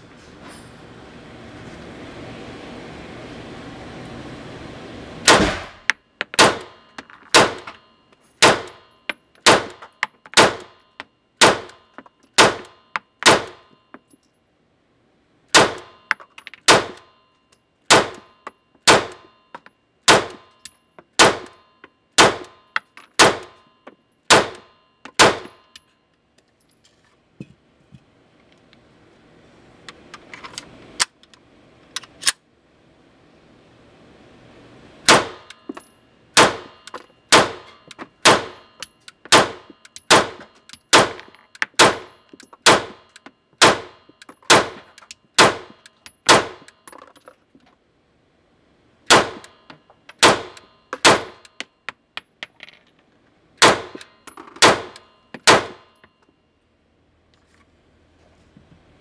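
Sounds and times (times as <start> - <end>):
pistol shots: 5.3 - 7.7, 8.4 - 9.8, 10.4 - 10.8, 11.4 - 11.8, 12.4 - 13.6, 15.5 - 16.0, 16.7 - 17.0, 17.9 - 18.3, 18.9 - 19.2, 20.1 - 20.5, 21.2 - 21.6, 22.2 - 22.6, 23.2 - 23.6, 24.3 - 25.6, 35.1 - 35.5, 36.4 - 38.7, 39.3 - 41.2, 41.8 - 46.7, 49.1 - 49.6, 50.2 - 51.5, 53.6 - 54.0, 54.6 - 55.9.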